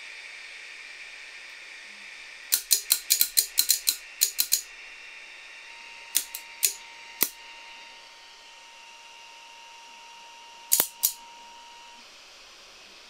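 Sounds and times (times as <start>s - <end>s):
faint high whine: 0.0s - 13.0s
sharp small clicks: 2.5s - 4.7s, 6.2s - 7.4s, 10.7s - 11.2s.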